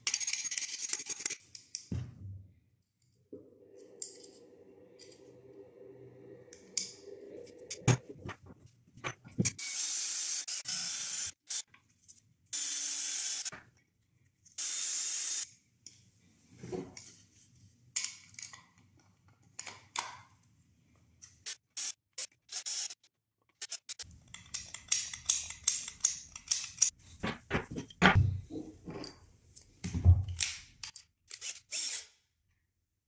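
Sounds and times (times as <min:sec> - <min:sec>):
wooden parts clicking and knocking: 0:24.0 - 0:28.2
cordless drill driving screws: 0:31.3 - 0:32.1.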